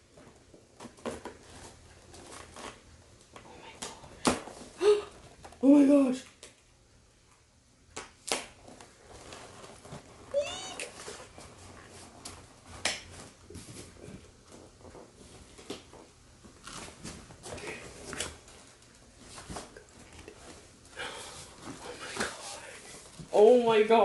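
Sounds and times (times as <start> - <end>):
cardboard and packing rustling: 0.0 - 3.3, 8.6 - 23.8.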